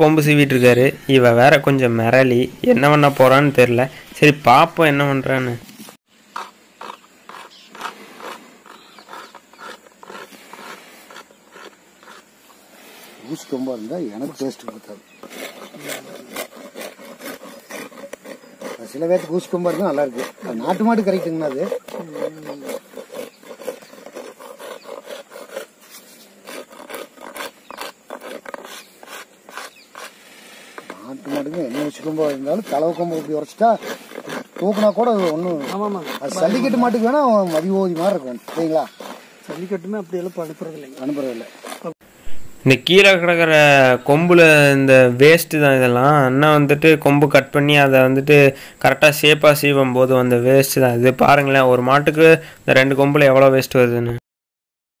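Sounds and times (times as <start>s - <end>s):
hand file rasping horn: 6.4s - 12.2s, 13.3s - 42.0s.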